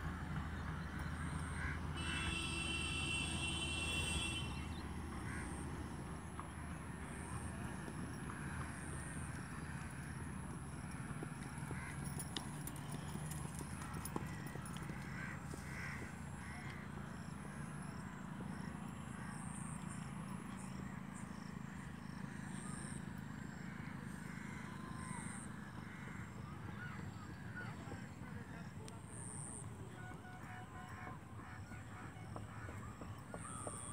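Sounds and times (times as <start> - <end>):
horse hooves clip-clopping: 6.3 - 18.7, 27.4 - 33.9.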